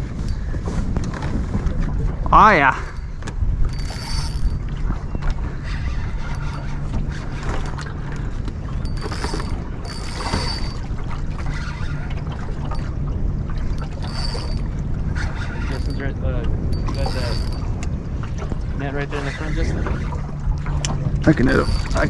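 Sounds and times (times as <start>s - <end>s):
low rumble: 0.0s - 22.0s
spinning reel cranking: 3.7s - 4.7s, 5.6s - 6.8s, 8.8s - 10.8s, 13.8s - 16.1s, 16.7s - 17.6s, 21.4s - 22.0s
short high-pitched reel buzzes: 3.8s - 4.5s, 14.0s - 14.6s.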